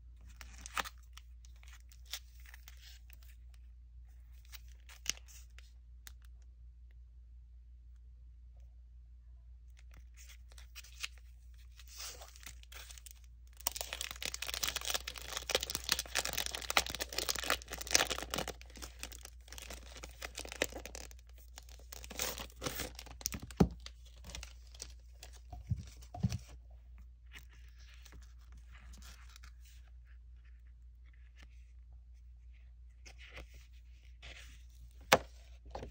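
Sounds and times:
cellophane sleeve crinkling: 0:00.3 - 0:03.3, 0:10.1 - 0:26.4.

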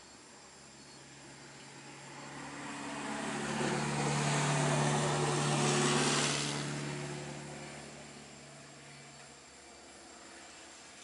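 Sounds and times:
vehicle engine drone: 0:00.0 - 0:11.0
tyre noise on road: 0:01.0 - 0:11.0.

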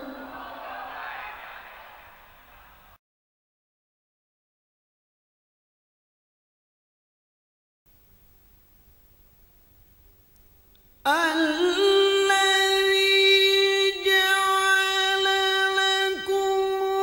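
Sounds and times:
man reciting melodically: 0:11.0 - 0:17.0.

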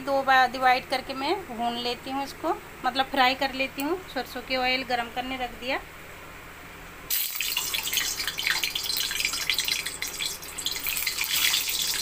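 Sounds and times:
oil sizzling and crackling: 0:07.1 - 0:12.0.

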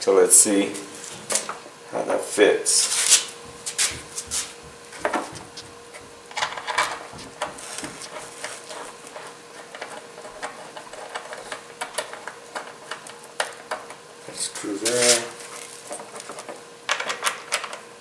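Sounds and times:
faint hum: 0:00.0 - 0:18.0.

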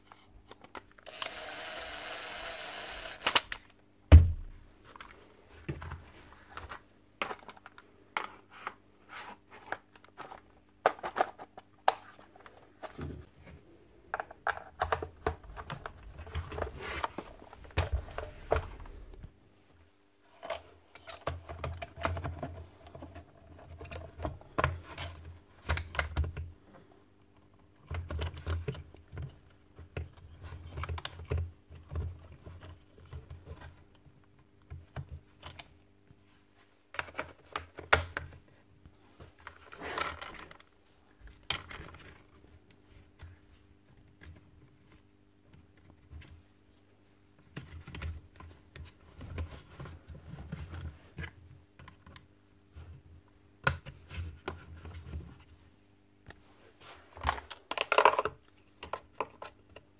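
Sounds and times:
plastic parts clicking: 0:00.5 - 0:03.7.

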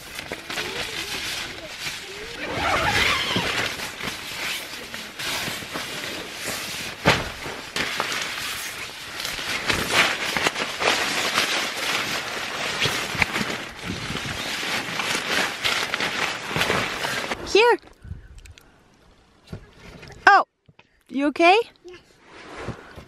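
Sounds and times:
fabric and sleeping pad rustling: 0:00.0 - 0:17.4, 0:22.2 - 0:23.0.

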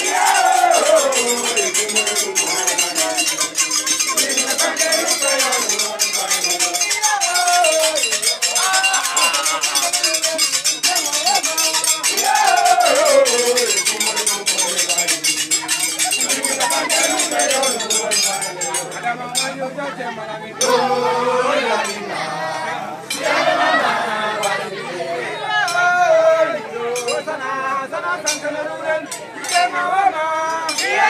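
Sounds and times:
sharp metallic clinks: 0:00.0 - 0:19.6, 0:27.0 - 0:27.3, 0:30.5 - 0:31.0
crowd singing and chanting: 0:00.0 - 0:31.0.

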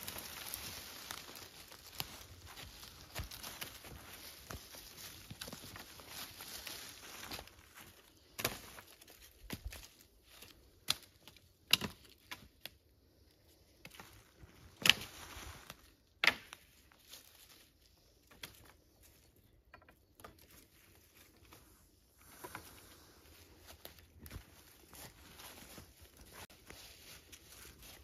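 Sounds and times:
rustling dry leaves: 0:00.0 - 0:12.6, 0:13.8 - 0:19.3, 0:20.4 - 0:28.0
dry sticks cracking: 0:00.0 - 0:12.8, 0:13.8 - 0:17.6.

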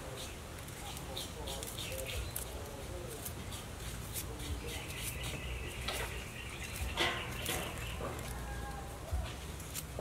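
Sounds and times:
birds chirping: 0:00.0 - 0:09.4
high steady bird trill: 0:03.4 - 0:09.1.

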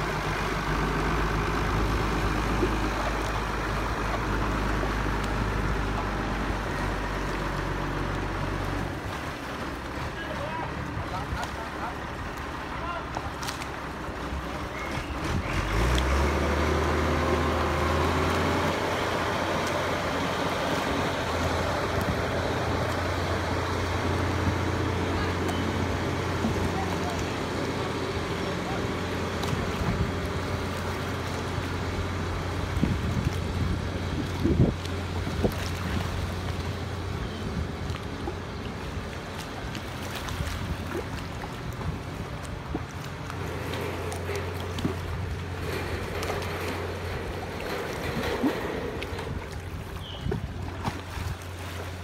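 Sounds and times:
outboard motor humming: 0:00.0 - 0:52.0
small waves lapping: 0:00.0 - 0:52.0
wind on microphone: 0:32.4 - 0:36.4.

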